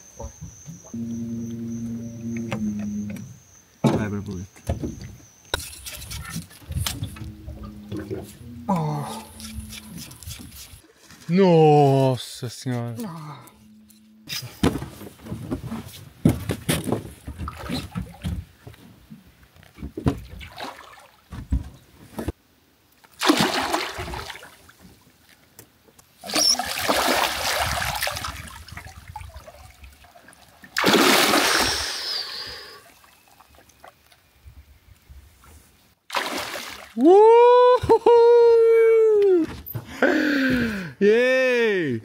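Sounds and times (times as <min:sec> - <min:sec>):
water splashing: 0:20.2 - 0:21.3, 0:23.1 - 0:24.8, 0:26.2 - 0:34.2, 0:36.1 - 0:37.0.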